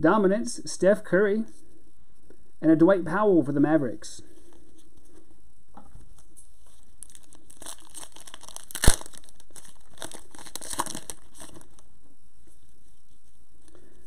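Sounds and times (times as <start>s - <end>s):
wrapper crinkling and tearing: 6.7s - 11.9s.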